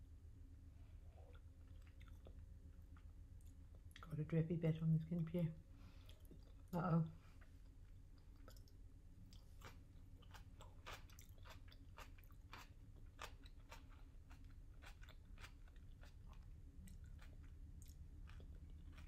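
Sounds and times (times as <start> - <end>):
crunchy chewing: 1.2 - 4.1, 7.4 - 19.0.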